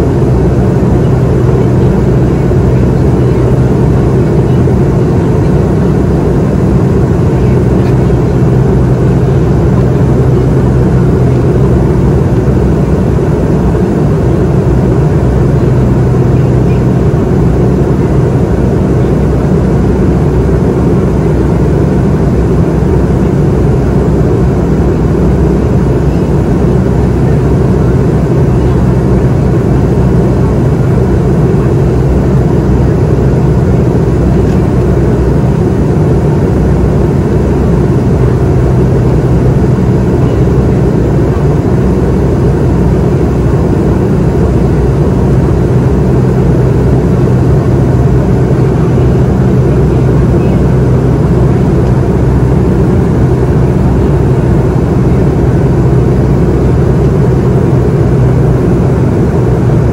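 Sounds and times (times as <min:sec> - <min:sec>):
low drone of jet engines: 0:00.0 - 0:59.9.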